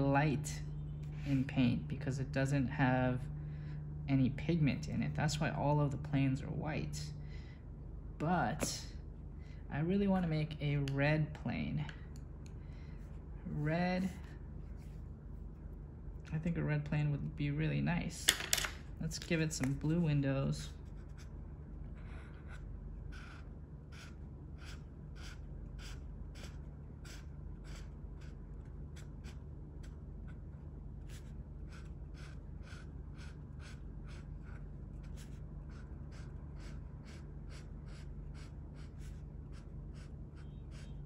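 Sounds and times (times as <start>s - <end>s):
steady low hum: 0.0s - 41.0s
marker scratching on paper: 22.0s - 41.0s.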